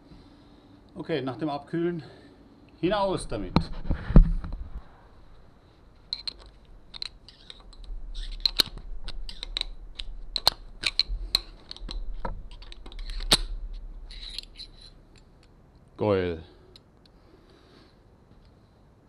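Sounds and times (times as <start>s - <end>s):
screwdriver clicking and scraping on metal: 6.1s - 15.5s.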